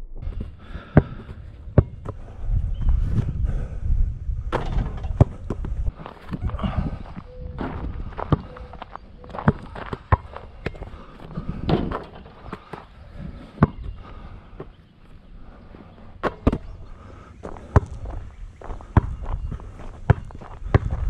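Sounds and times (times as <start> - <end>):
basketball knocks and thumps: 0.3 - 2.2, 4.5 - 6.4, 7.6 - 8.5, 20.0 - 21.0.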